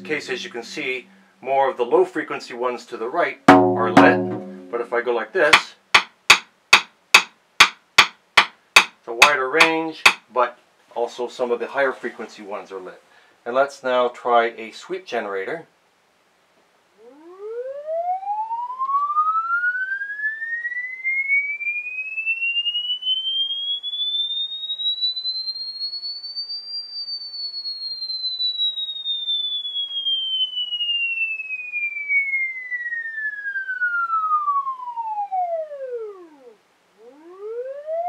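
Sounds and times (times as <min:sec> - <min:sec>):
pure tone gliding up and down: 0:00.0 - 0:05.1, 0:16.9 - 0:25.8, 0:28.0 - 0:38.0.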